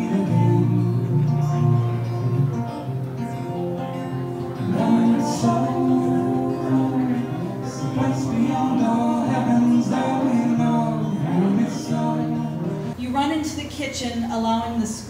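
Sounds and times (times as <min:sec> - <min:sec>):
woman singing: 0:00.0 - 0:01.6, 0:04.7 - 0:12.7
strummed acoustic guitar: 0:00.0 - 0:13.0.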